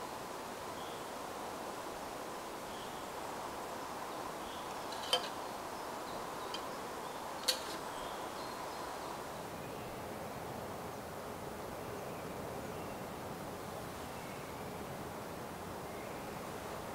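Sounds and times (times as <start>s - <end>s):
forest ambience: 0.0s - 11.3s
metal cookware clinking: 4.7s - 5.4s, 7.4s - 7.9s.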